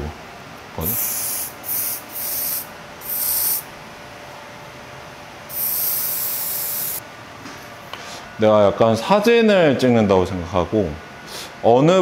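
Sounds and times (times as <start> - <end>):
aerosol spray hissing: 0.8 - 3.7, 5.5 - 7.0.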